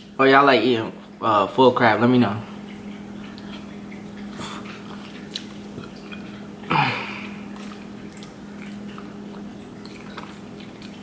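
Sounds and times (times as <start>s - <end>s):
person chewing and sucking: 3.3s - 11.0s.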